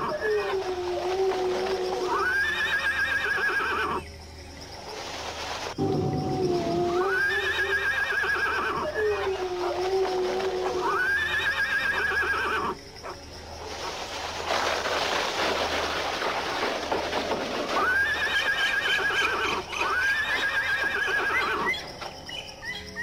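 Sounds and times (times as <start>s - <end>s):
horse whinnying: 1.9s - 4.0s, 6.5s - 12.8s, 17.7s - 21.7s.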